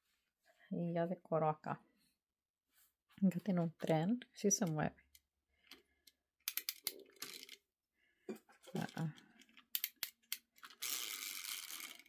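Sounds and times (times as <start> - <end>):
toy train clicks and knocks: 6.5 - 7.6, 9.6 - 12.0
small battery motor whirring: 10.8 - 12.0.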